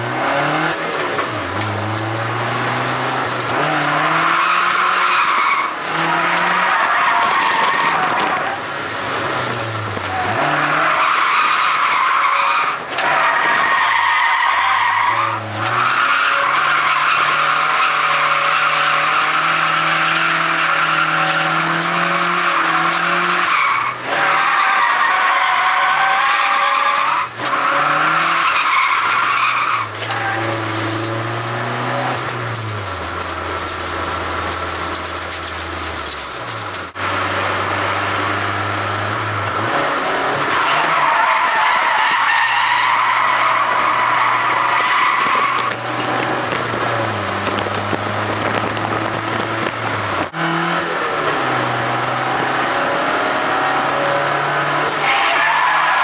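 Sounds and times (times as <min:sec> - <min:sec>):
car engine revving: 0:00.0 - 0:56.0
tyres squealing: 0:04.0 - 0:08.7, 0:10.0 - 0:33.5, 0:39.6 - 0:47.2, 0:53.4 - 0:56.0.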